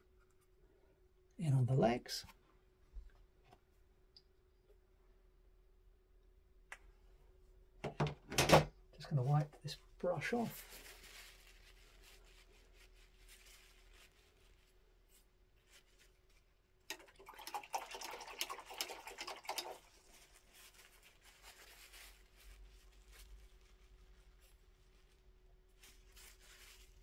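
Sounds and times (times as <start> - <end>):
paintbrush rubbing and rustling: 10.4 - 16.6, 19.8 - 27.0.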